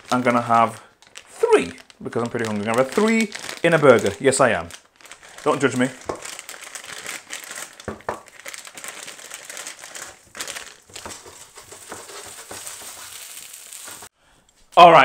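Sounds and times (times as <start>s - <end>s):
plastic packet crinkling: 0.0s - 14.1s
oil sizzling: 10.0s - 14.2s.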